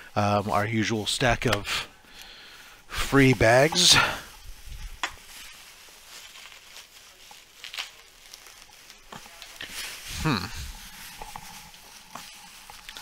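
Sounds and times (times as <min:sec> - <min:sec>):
plastic bags crinkling: 0:03.3 - 0:13.0.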